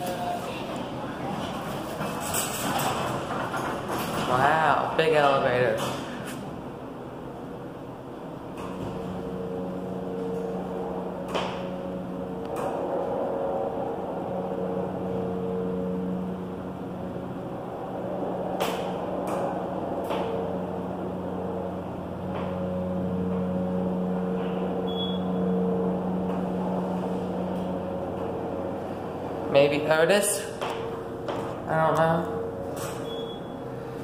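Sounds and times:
elevator drive hum: 0.0s - 34.0s.

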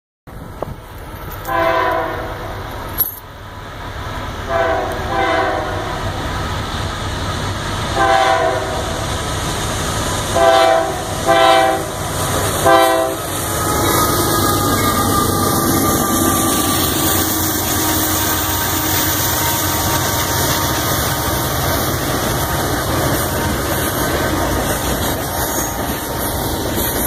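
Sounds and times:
train rumble: 0.3s - 27.0s
locomotive air horn blasts: 1.5s - 2.5s, 4.5s - 6.0s, 8.0s - 8.9s, 10.4s - 12.0s, 12.6s - 21.4s.

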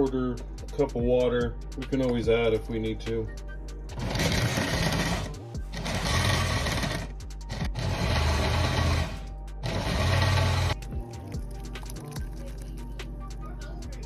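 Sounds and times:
blender pulsing: 3.9s - 10.8s.

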